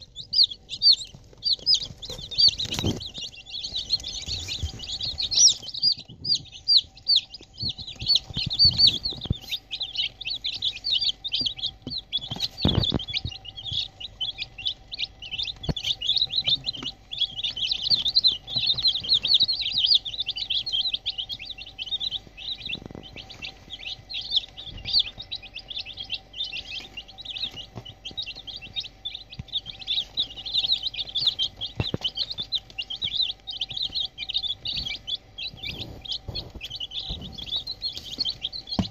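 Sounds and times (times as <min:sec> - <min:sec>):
chicks peeping: 0:00.0 - 0:38.9.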